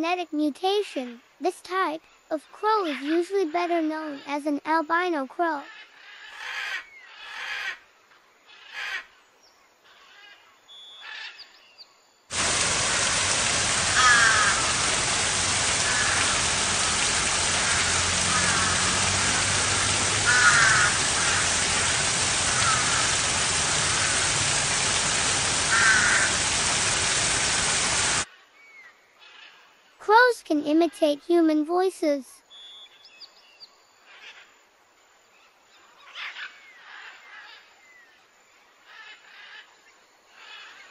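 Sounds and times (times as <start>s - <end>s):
small waterfall rushing: 12.3s - 28.3s
crows cawing: 12.4s - 26.9s.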